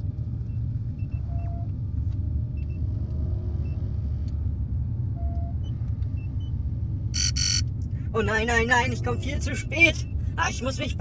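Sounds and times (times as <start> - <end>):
low engine rumble: 0.0 - 11.0
short electronic bleeps: 7.2 - 7.6.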